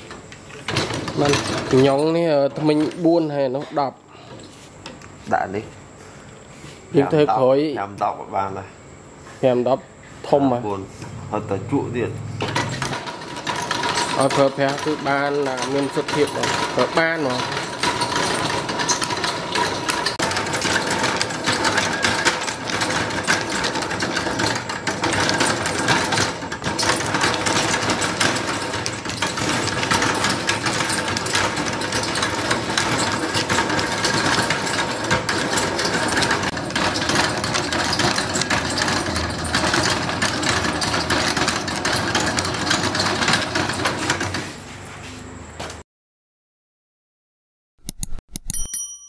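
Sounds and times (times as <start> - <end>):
faint gear whine: 10.3 - 13.0
gears clattering: 12.2 - 44.4.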